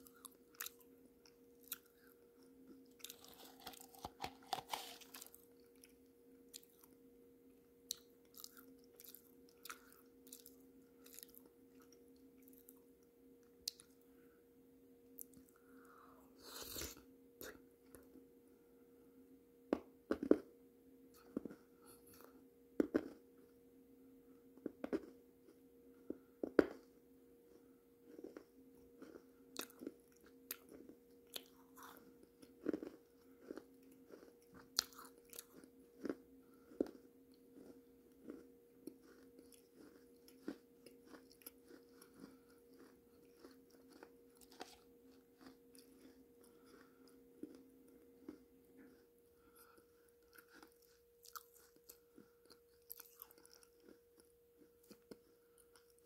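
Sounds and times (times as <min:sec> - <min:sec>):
faint steady hum: 0:00.0 - 0:56.0
wet chewing mouth sounds: 0:03.0 - 0:05.9, 0:29.0 - 0:56.0.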